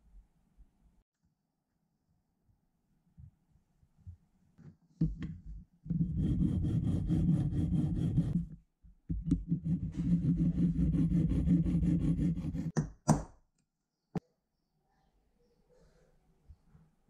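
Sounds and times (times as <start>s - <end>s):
metal file filing aluminium: 6.0s - 8.4s, 9.5s - 12.8s.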